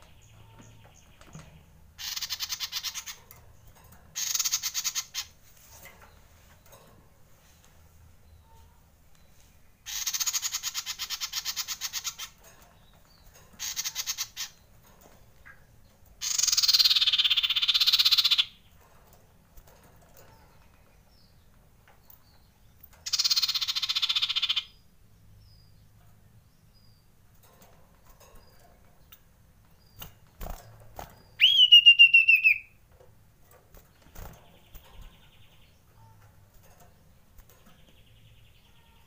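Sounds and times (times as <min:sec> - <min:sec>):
bird harsh rattling calls: 0:02.0 - 0:05.4, 0:09.8 - 0:14.7, 0:16.2 - 0:18.7, 0:23.0 - 0:24.8.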